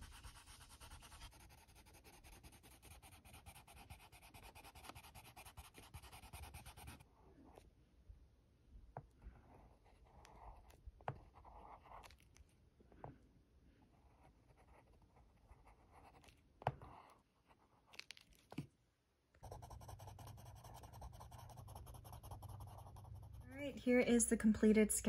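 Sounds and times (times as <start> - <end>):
pencil scratching on paper: 0.0 - 7.6, 9.5 - 12.3, 13.9 - 17.9, 19.4 - 23.6.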